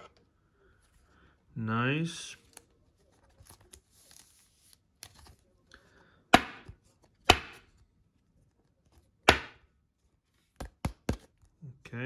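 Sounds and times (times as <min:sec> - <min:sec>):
faint rustle of handling: 0:02.2 - 0:06.1.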